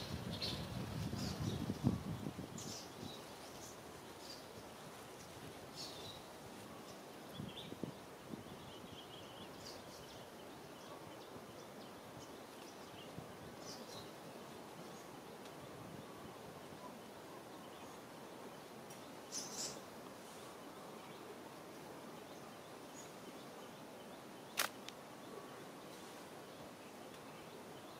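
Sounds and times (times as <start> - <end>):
steady outdoor hiss: 0.0 - 27.9
faint crackles: 24.5 - 25.0.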